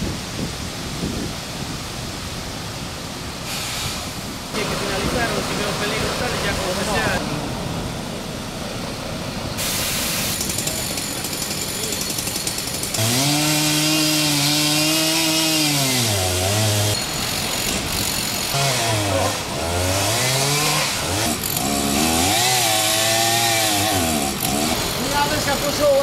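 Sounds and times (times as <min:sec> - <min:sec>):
chainsaw cutting and revving: 0:10.3 - 0:26.0.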